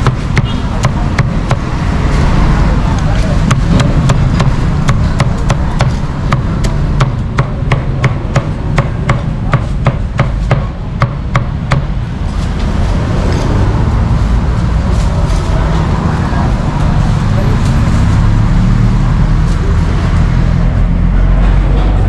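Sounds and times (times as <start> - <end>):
street traffic noise: 0.0 - 22.0
cleaver chopping on a board: 3.4 - 11.9.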